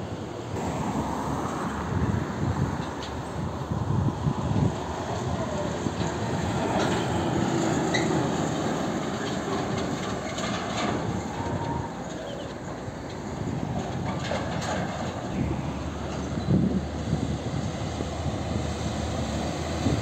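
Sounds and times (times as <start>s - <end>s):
road noise: 0.0s - 20.0s
truck diesel engine passing: 0.1s - 20.0s
trailer clanks and rattles: 4.4s - 20.0s.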